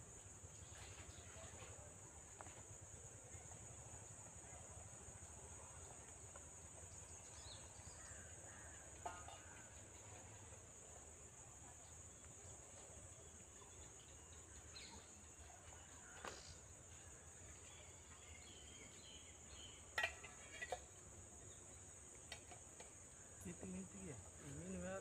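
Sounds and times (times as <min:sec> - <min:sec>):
insects droning: 0:00.0 - 0:25.0.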